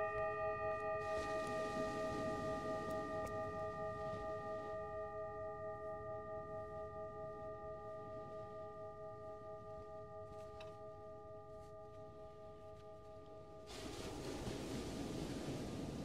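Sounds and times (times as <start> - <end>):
singing bowl ringing: 0.0 - 15.9.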